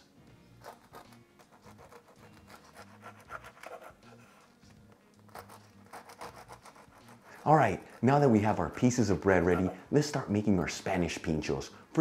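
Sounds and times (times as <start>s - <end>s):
soft background music: 0.0s - 12.0s
knife sawing through bread: 0.7s - 4.6s, 5.3s - 9.9s.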